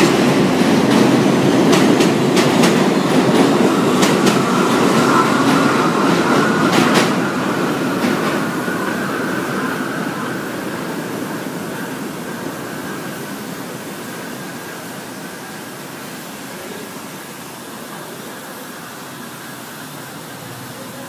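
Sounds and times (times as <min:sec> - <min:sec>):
train rumble on elevated track: 0:00.0 - 0:21.0
thin high whine: 0:03.2 - 0:15.6.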